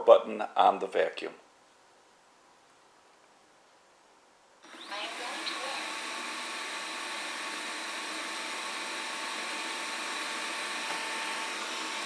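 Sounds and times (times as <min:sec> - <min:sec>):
robot vacuum whirring hiss: 0:04.6 - 0:12.0.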